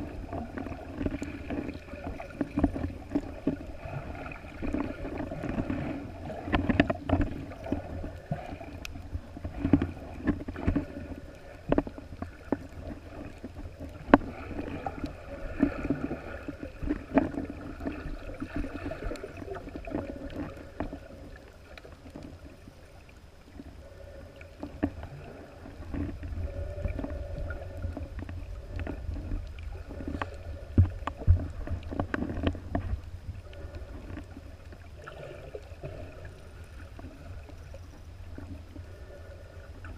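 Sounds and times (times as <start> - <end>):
low underwater rumble: 0.0 - 39.9
water sloshing underwater: 0.0 - 39.9.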